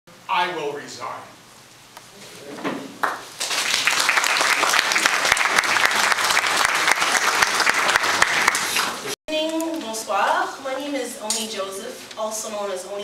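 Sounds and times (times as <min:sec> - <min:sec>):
audience applauding: 0:03.0 - 0:09.2.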